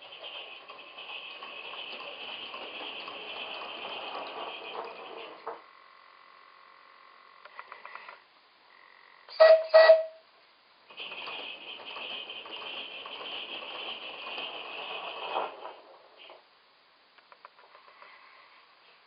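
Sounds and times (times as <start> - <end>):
whistle toots: 9.3 - 10.2.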